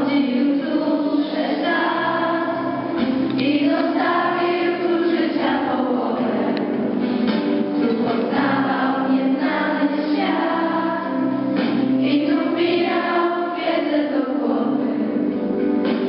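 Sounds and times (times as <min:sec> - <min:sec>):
children singing in chorus: 0:00.0 - 0:07.0, 0:07.8 - 0:15.2.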